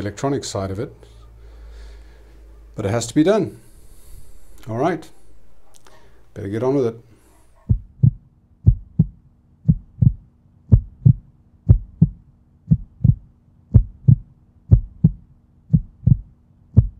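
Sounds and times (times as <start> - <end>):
faint steady hum: 0.0 - 16.9
heartbeat thumps: 7.6 - 16.9.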